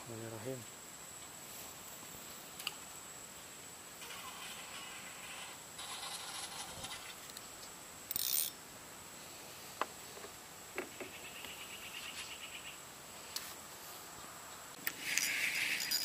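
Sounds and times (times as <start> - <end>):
fishing reel ticking: 8.1 - 8.5, 14.9 - 16.0
fishing line hiss: 14.8 - 16.0.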